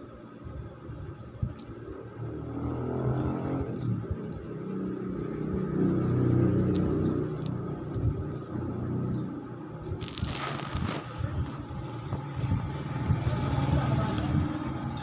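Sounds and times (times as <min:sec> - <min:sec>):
vehicle engine passing by: 0:02.2 - 0:09.4, 0:10.8 - 0:15.0.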